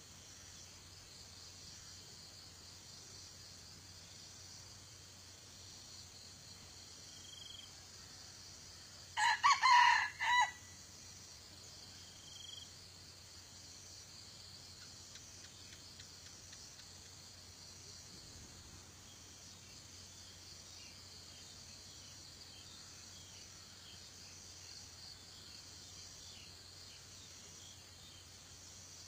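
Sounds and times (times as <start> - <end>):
high insect drone: 0.0 - 29.0
rooster crowing: 9.2 - 10.7.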